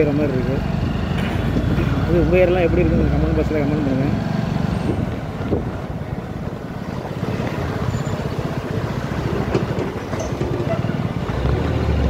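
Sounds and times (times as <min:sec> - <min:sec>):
wind buffeting microphone: 0:04.5 - 0:12.0.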